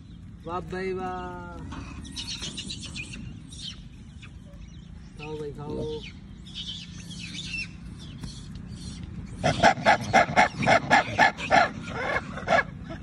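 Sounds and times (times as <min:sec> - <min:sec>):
monkeys calling loudly: 0:06.0 - 0:13.0.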